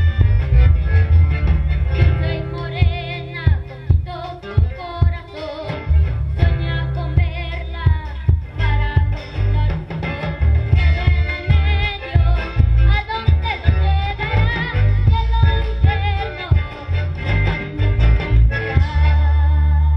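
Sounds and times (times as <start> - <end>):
live band playing: 0.0 - 19.9
boy singing: 2.1 - 10.0, 10.7 - 17.1, 18.6 - 19.9.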